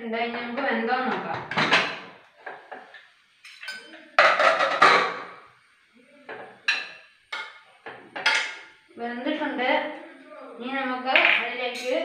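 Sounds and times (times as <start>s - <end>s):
steel ladle knocking in pot: 4.2s - 5.4s.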